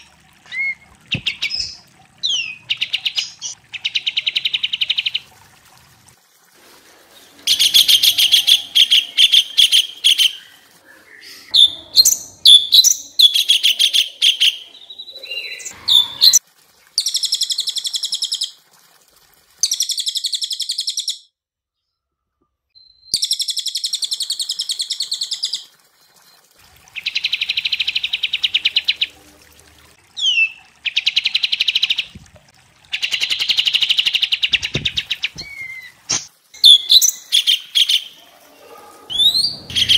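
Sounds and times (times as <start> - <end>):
songbirds singing: 7.5 - 16.4
loud fast bird trills: 39.1 - 39.9.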